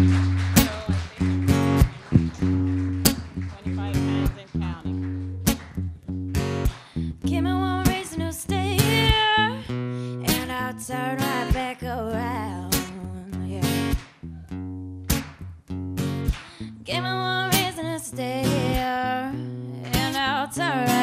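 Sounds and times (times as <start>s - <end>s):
deep bass line: 0.0s - 7.8s
strummed acoustic guitar: 0.0s - 21.0s
woman singing with vibrato: 7.2s - 13.9s, 16.9s - 21.0s.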